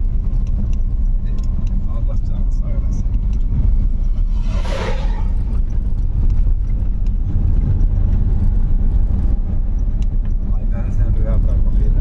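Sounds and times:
truck passing whoosh: 0:03.4 - 0:06.8.

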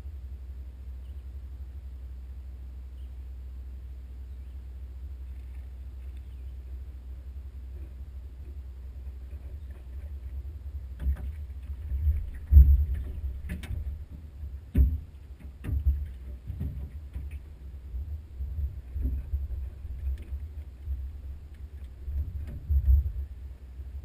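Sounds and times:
steady low rumble: 0:00.0 - 0:24.0
knocks in aluminum boat: 0:11.0 - 0:17.6, 0:18.6 - 0:21.0, 0:22.0 - 0:23.2.

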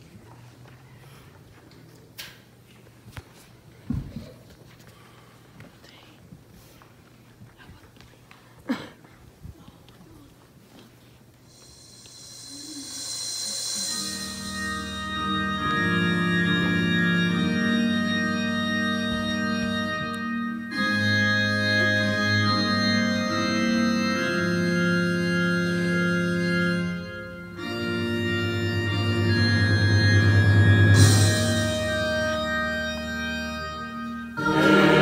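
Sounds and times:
organ playing slow chords: 0:11.5 - 0:35.0.

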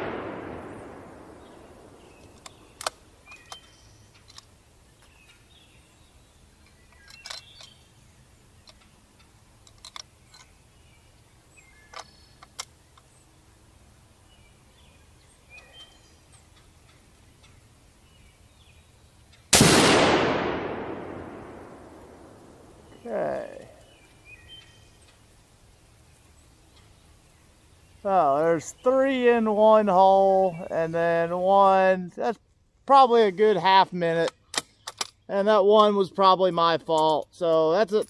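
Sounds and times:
rifle shot: 0:00.0 - 0:03.0, 0:19.5 - 0:22.9
faint bird chirps: 0:00.1 - 0:04.2, 0:10.1 - 0:19.5, 0:22.0 - 0:29.4.

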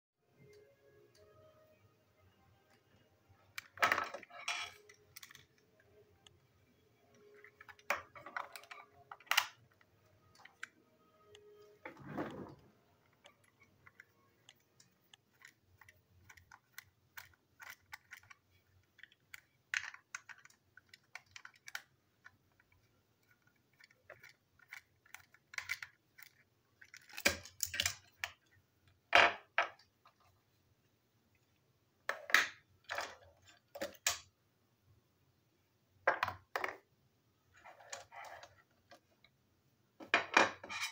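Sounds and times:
small plastic and metal clicks: 0:13.2 - 0:29.0.

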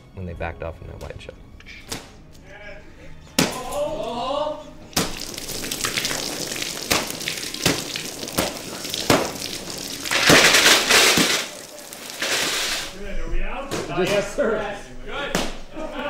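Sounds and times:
liquid splashes: 0:04.9 - 0:13.0
fake blood spraying hiss: 0:05.0 - 0:13.0.

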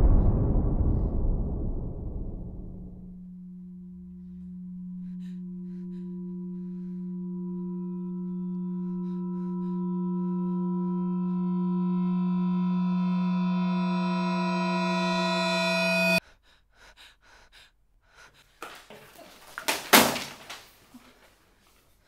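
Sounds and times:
loud rumble: 0:00.0 - 0:16.2
low ringing drone tone: 0:02.6 - 0:16.2.

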